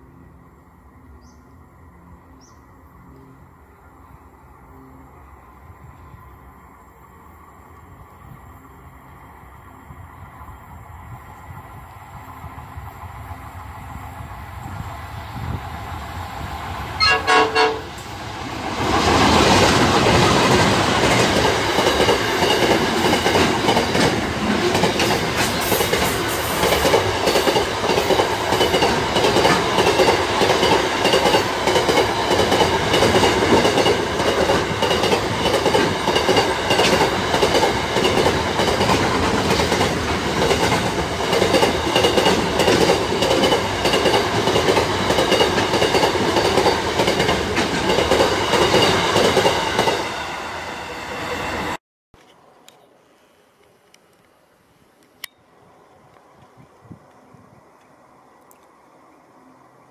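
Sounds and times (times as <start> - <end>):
freight train passing: 0.0 - 51.8, 52.4 - 59.9
wheels clattering on rails: 18.0 - 50.0.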